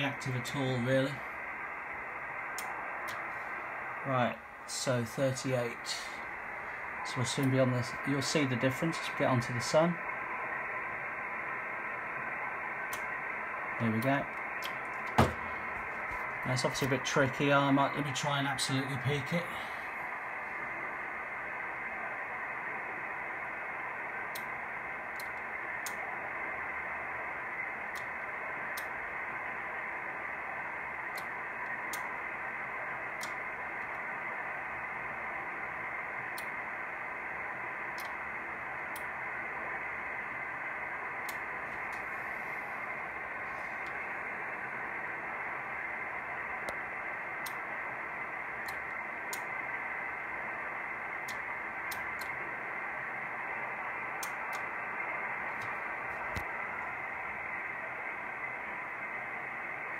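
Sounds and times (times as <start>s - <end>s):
radio receiver hiss: 0.0s - 59.9s
faint irregular ticks: 25.1s - 26.0s, 27.9s - 29.0s, 31.0s - 32.1s, 37.9s - 38.2s, 47.4s - 47.6s, 48.6s - 49.5s, 51.2s - 52.4s.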